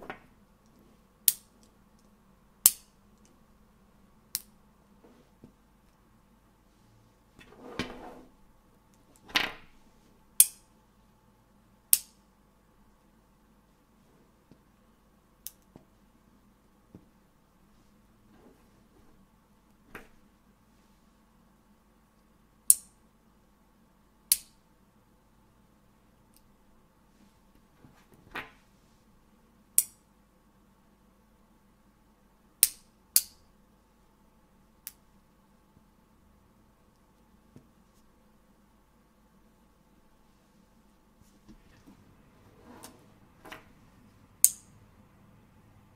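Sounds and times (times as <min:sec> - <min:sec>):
magnetic balls snapping clicks: 0:01.2 - 0:03.3, 0:04.3 - 0:04.6, 0:10.4 - 0:10.7, 0:15.4 - 0:15.7, 0:22.7 - 0:22.9, 0:24.3 - 0:24.6, 0:29.8 - 0:30.0, 0:32.6 - 0:33.4, 0:44.4 - 0:44.7.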